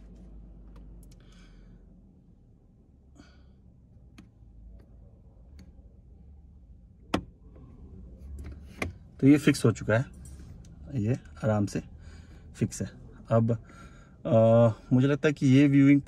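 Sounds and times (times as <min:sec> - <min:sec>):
faint clicks and handling noise: 0:00.0 - 0:01.3, 0:07.1 - 0:09.4.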